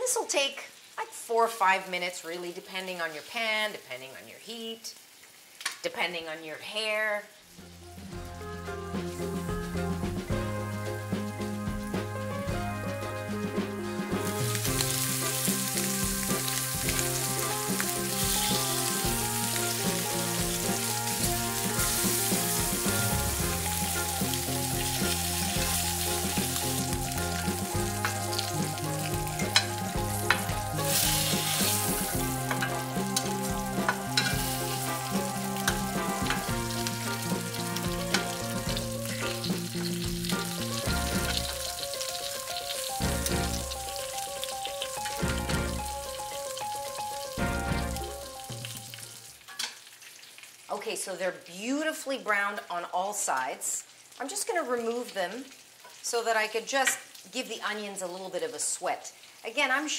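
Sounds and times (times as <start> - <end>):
meat sizzling in hot fat: 0.0 - 59.9
metal tongs clicking: 33.9 - 34.5.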